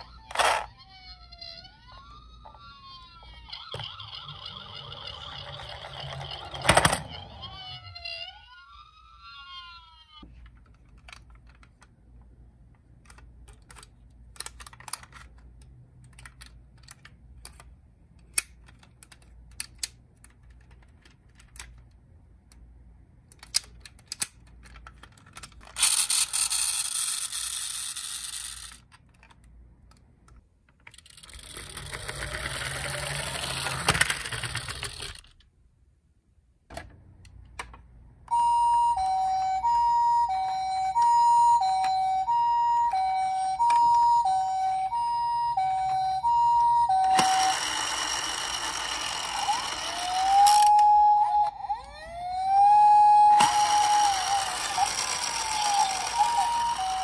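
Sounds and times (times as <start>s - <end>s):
toy siren wailing: 0.0s - 10.3s, 38.3s - 57.0s
plastic toy cars clicking: 2.3s - 8.2s, 9.3s - 12.0s, 12.8s - 35.5s, 45.8s - 57.0s.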